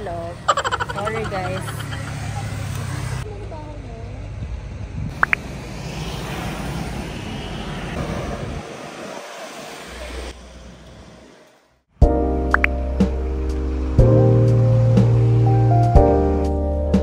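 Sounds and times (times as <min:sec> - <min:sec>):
road traffic passing: 0:00.0 - 0:17.0
background music: 0:12.0 - 0:17.0.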